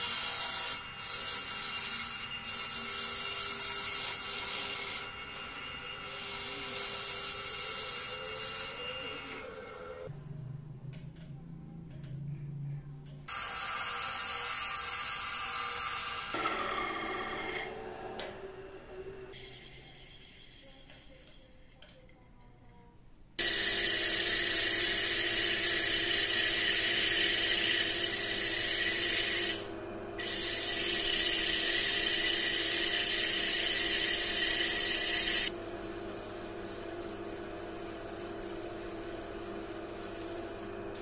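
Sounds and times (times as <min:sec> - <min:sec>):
lathe motor hum: 0:14.4 - 0:20.6.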